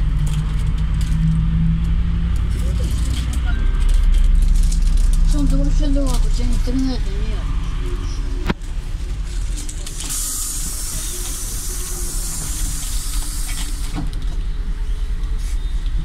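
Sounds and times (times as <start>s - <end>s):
bus engine rumbling: 0.0s - 16.0s
compressed air hissing: 10.0s - 14.0s.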